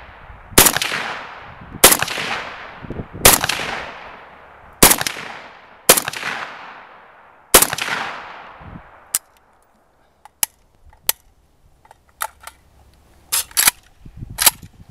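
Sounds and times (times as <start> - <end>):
rifle shot: 0.1 - 9.0
metallic clicks of rifle handling: 9.1 - 14.8.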